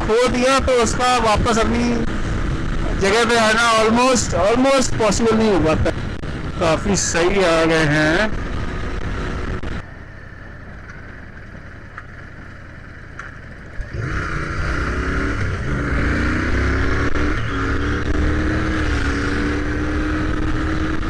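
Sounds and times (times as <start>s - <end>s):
motorcycle engine accelerating: 10.6s - 21.0s.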